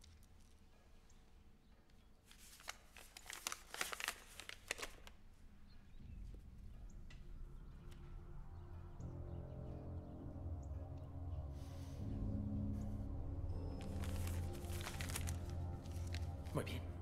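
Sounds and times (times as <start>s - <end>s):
paper crinkling: 2.2s - 5.4s, 13.6s - 16.6s
low rumble: 6.0s - 17.0s.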